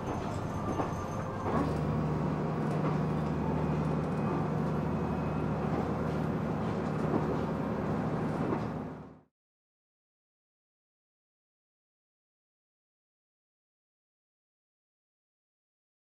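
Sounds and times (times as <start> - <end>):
train rail and wheel noise: 0.0 - 9.3.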